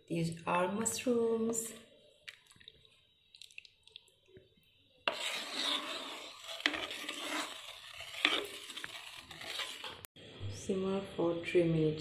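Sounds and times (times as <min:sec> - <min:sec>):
spoon scraping a pan: 0:05.0 - 0:10.1.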